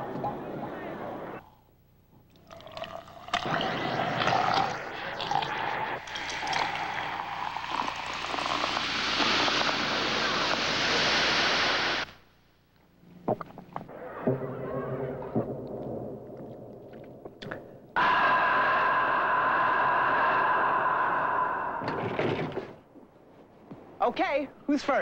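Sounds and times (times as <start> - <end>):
cola pouring into glass: 2.4 - 10.7
carbonation fizzing: 2.5 - 12.1.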